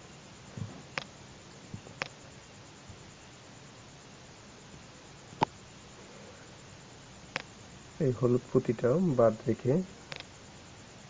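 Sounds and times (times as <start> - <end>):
faint steady hiss: 0.0 - 11.0
small sharp clicks of beads: 10.1 - 10.3.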